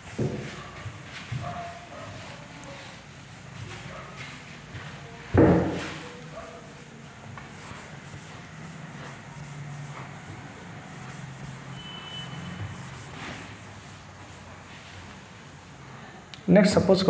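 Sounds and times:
duster rubbing on whiteboard: 0.0s - 16.0s
faint squeak: 11.7s - 13.0s.

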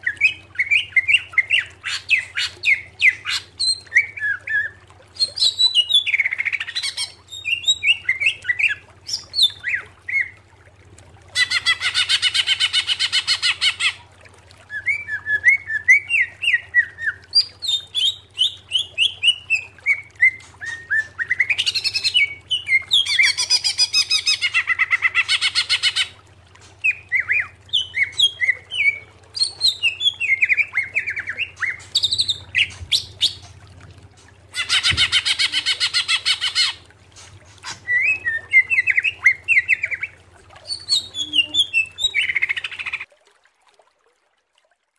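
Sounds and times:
bird whistled chirps: 37.8s - 40.1s, 40.7s - 43.0s.

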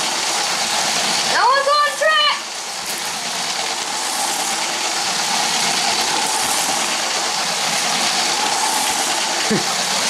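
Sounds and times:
toy train wheels rattling on track: 2.6s - 10.0s
electric motor whine: 2.8s - 10.0s.

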